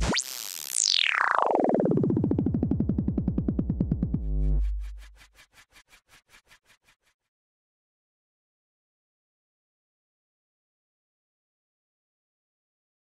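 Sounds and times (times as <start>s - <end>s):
pulsing synthesizer tone: 0.0s - 5.4s
deep bass boom: 2.6s - 5.2s.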